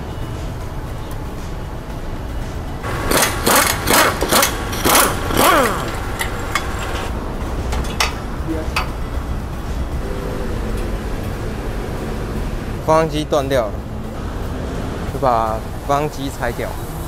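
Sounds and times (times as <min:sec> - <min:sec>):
steady low hum: 0:00.0 - 0:17.0
power tool bursts: 0:02.9 - 0:07.1.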